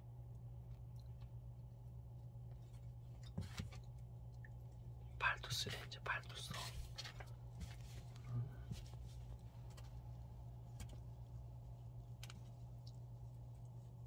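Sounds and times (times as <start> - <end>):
steady low hum: 0.0 - 14.0
faint clicks and scuffles: 6.3 - 14.0.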